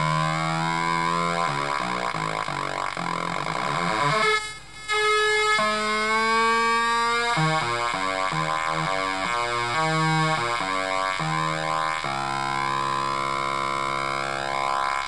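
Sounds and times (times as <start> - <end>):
square-wave synth buzzing: 0.0 - 15.0.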